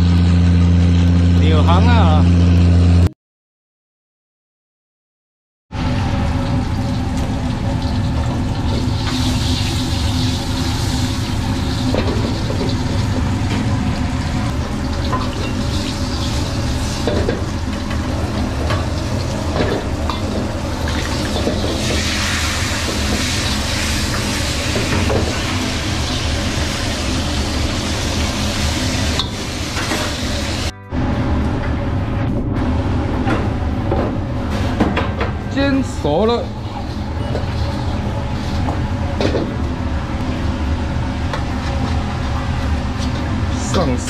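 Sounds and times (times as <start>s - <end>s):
kitchen range low hum: 0.0s - 3.1s, 5.8s - 44.0s
fish sizzling in oil: 5.8s - 30.7s.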